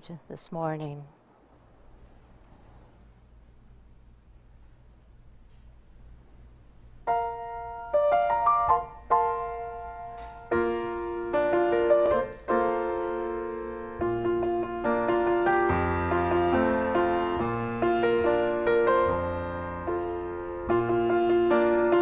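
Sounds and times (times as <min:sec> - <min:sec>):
grand piano playing: 0:07.0 - 0:22.0.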